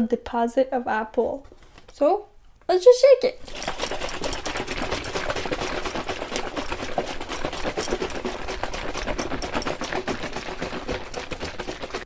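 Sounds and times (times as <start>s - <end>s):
juice sloshing in shaken bottle: 3.4s - 12.0s.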